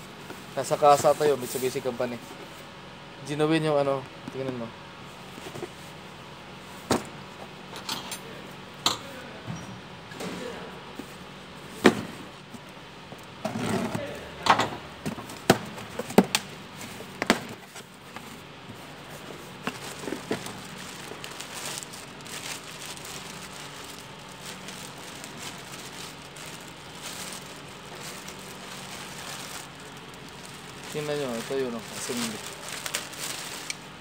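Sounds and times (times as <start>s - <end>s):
plastic packaging crinkling: 19.6s - 34.0s.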